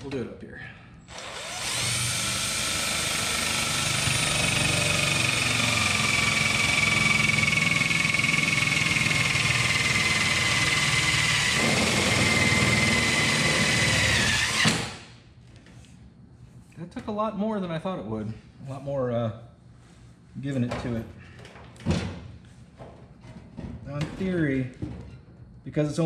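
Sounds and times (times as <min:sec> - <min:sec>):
cordless drill driving screw: 0:01.1 - 0:15.1.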